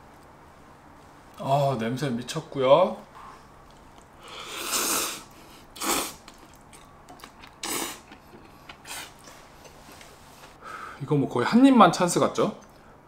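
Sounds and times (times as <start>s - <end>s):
person blowing on noodles: 4.2s - 6.2s, 7.6s - 8.1s, 8.8s - 9.2s.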